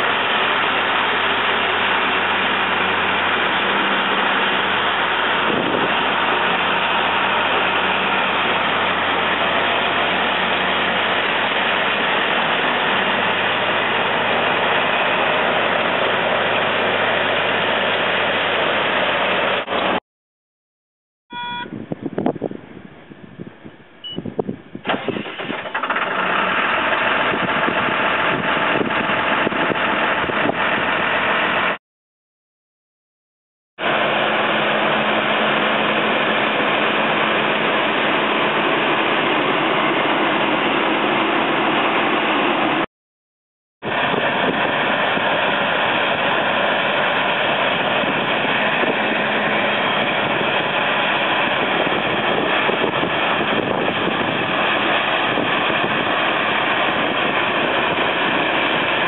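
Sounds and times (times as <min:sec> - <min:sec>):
diesel bulldozer engine: 0:00.0 - 0:20.0, 0:21.3 - 0:31.8, 0:33.8 - 0:42.9, 0:43.8 - 0:59.0
brief beep: 0:21.3 - 0:21.8, 0:24.0 - 0:24.3.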